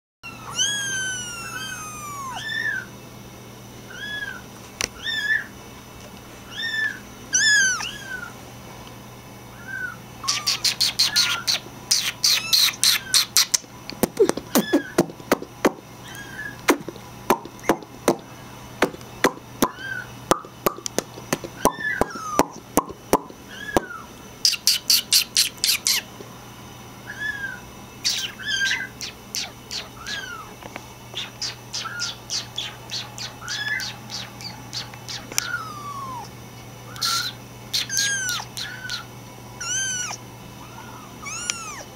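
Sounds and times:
kittens mewing: 0.2s - 2.9s, 3.9s - 5.5s, 6.5s - 8.4s, 9.6s - 15.4s, 16.0s - 16.9s, 19.6s - 20.1s, 21.5s - 22.6s, 23.5s - 26.1s, 27.1s - 30.6s, 31.2s - 41.9s.

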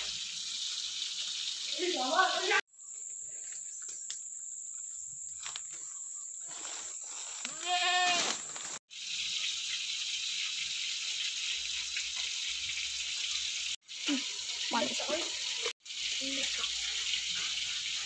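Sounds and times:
goat bleating: 7.4s - 8.2s.

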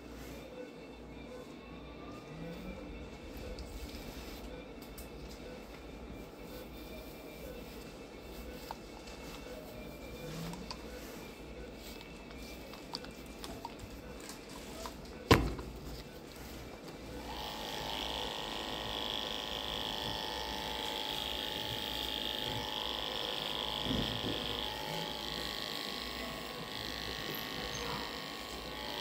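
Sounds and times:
electric clippers humming: 17.2s - 29.0s.

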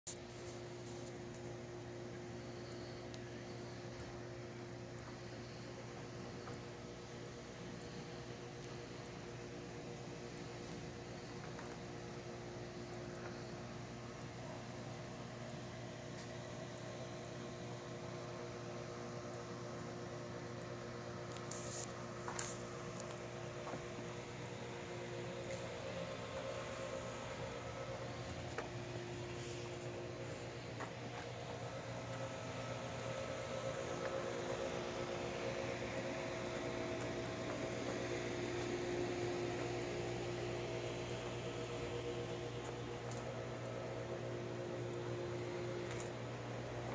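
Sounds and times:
machine hum with tones: 0.1s - 46.9s
click: 8.6s - 8.8s.

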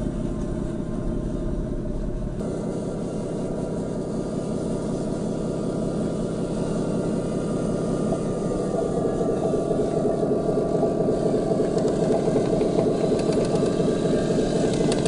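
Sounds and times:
toy truck mechanical drone: 3.3s - 15.0s.

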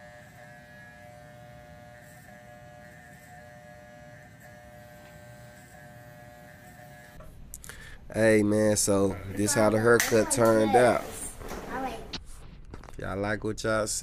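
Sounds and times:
electric hair trimmer buzzing: 0.0s - 7.3s.

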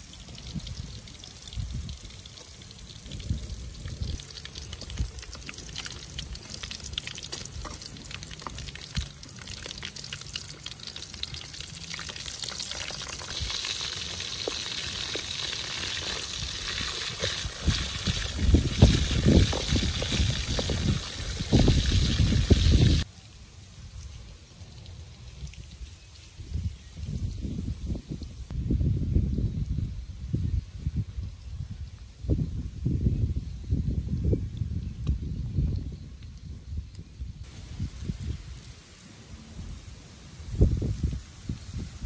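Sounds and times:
pork sizzling in a wok: 0.0s - 23.1s.

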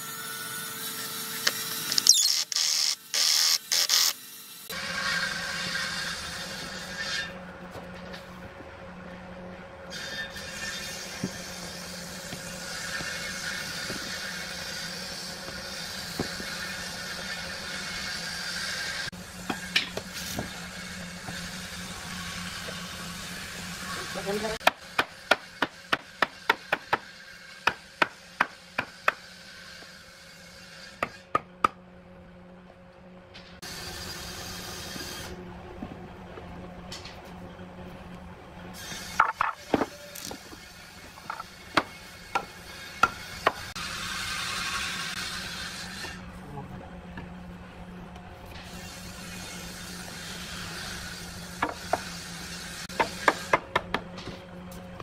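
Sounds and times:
steady background hum: 0.2s - 55.0s.

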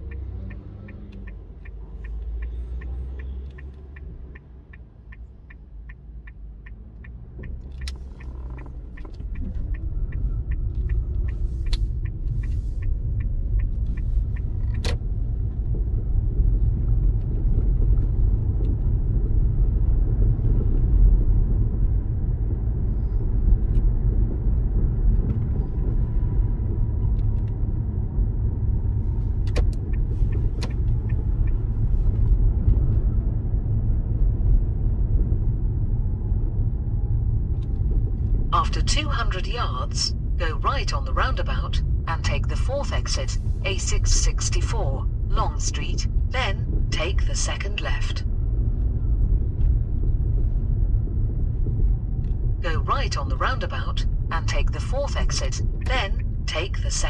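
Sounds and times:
car turn indicator ticking: 0.0s - 15.9s, 29.4s - 32.0s
car engine and tyre rumble: 0.0s - 57.0s.

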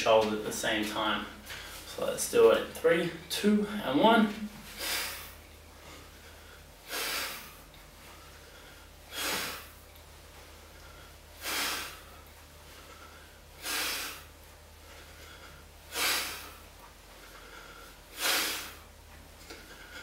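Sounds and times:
man exhaling forcefully: 4.7s - 5.4s, 6.8s - 7.6s, 9.1s - 9.7s, 11.4s - 12.1s, 13.6s - 14.3s, 15.9s - 16.6s, 18.1s - 18.9s.

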